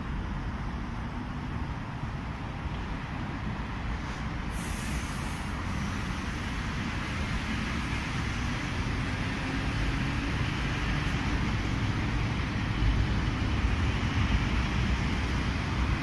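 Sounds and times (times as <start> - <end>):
electric train low rumble: 0.0 - 16.0
brief hiss: 4.0 - 6.4.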